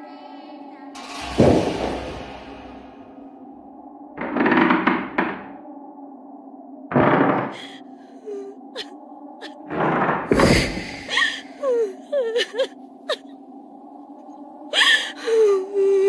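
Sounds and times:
eerie low drone: 0:00.0 - 0:16.0
loud dull ringing thuds: 0:01.1 - 0:03.1.

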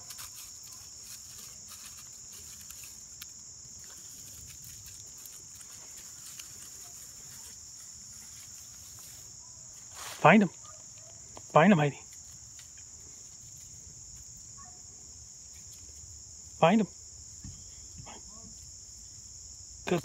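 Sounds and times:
rustles in dry leaf litter: 0:00.0 - 0:10.6
insects chirping: 0:00.0 - 0:20.0.

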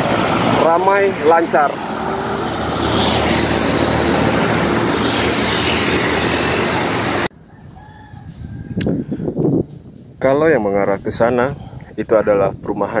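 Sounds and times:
road traffic passing: 0:00.0 - 0:07.4.

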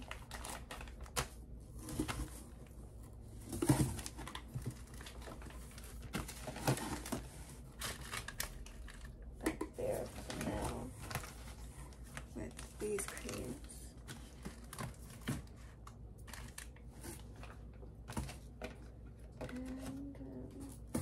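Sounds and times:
plastic packages crinkling: 0:00.0 - 0:02.6, 0:03.5 - 0:21.0.

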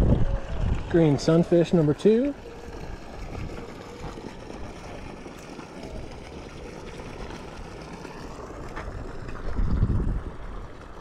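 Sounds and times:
wind buffeting microphone: 0:00.0 - 0:01.5, 0:02.6 - 0:05.3, 0:08.9 - 0:11.0.

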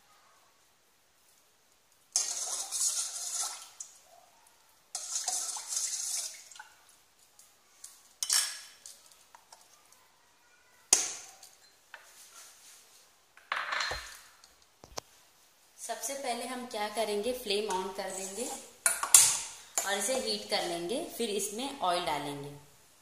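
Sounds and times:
spoon swishing water in pot: 0:02.1 - 0:04.0, 0:04.9 - 0:07.0, 0:17.5 - 0:19.2
spoon clinking against pot: 0:18.8 - 0:20.3.

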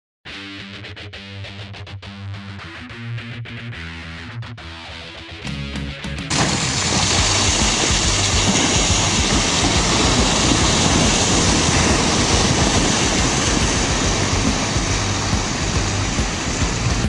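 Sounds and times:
diesel engine running under load: 0:06.3 - 0:17.0.

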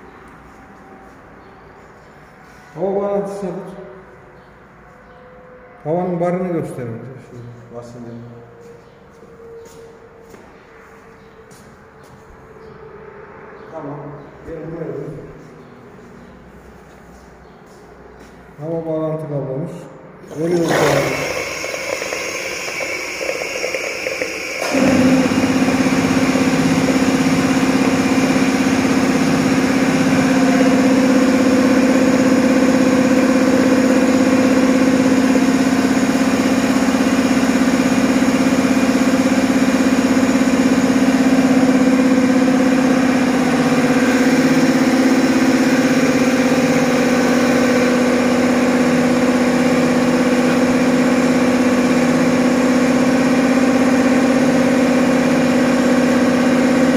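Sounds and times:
loud machine hum with hiss: 0:20.2 - 0:56.9.

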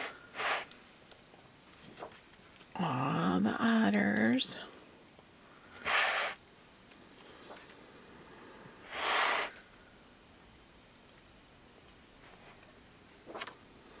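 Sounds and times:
book pages turning: 0:01.8 - 0:02.4, 0:13.2 - 0:13.5.

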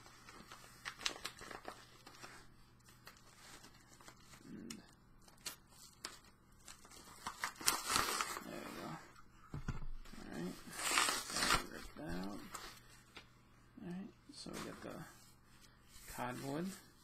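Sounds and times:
packaging tearing: 0:05.3 - 0:08.5, 0:10.7 - 0:11.8.

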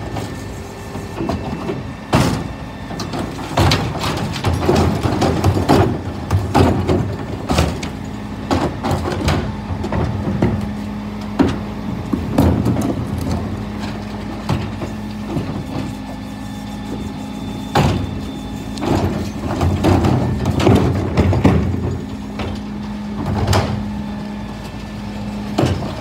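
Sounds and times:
wheelie bins rolling over tarmac: 0:00.0 - 0:26.0
diesel engine idling: 0:01.7 - 0:26.0
bins knocking against lift: 0:18.8 - 0:22.6.

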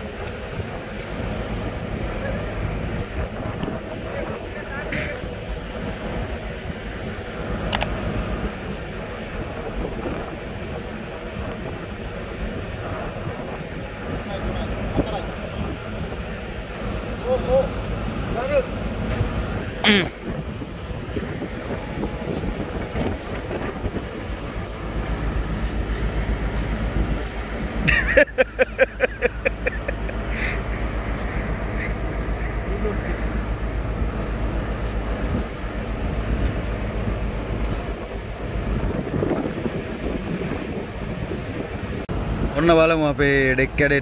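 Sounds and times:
low rumble of ship deck noise: 0:00.0 - 0:44.0
person laughing: 0:27.8 - 0:32.0.

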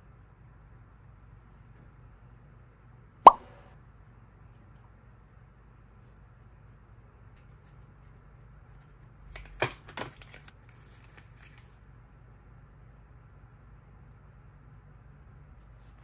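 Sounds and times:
rustle of card and tissue paper: 0:10.1 - 0:11.9, 0:15.6 - 0:16.0.

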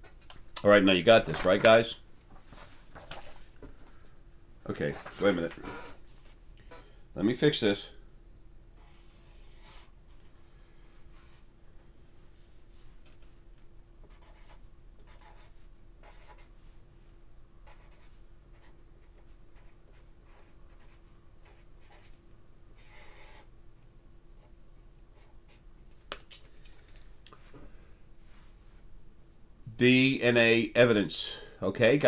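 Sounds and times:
marker scratching on paper: 0:08.8 - 0:09.9, 0:14.1 - 0:16.5, 0:17.7 - 0:22.1.

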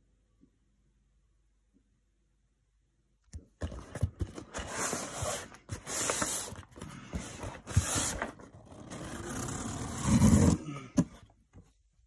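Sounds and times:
cardboard box rustling and scraping: 0:03.6 - 0:11.2.

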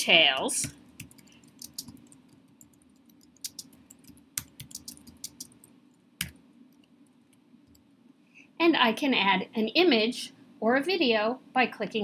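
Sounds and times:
keyboard typing clicks: 0:00.6 - 0:06.4.

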